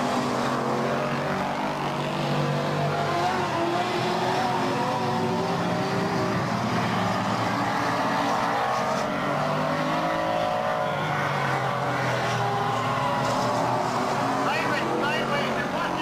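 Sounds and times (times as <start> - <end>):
race truck engines roaring: 0.0 - 16.0.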